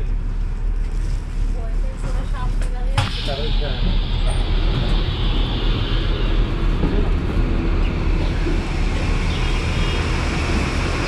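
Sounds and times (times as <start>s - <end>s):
aircraft engine rumble: 0.0s - 11.0s.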